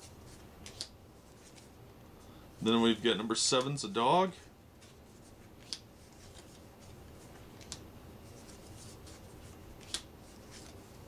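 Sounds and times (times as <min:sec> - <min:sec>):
playing cards rubbing: 0:04.8 - 0:11.0
card snaps: 0:09.8 - 0:10.1.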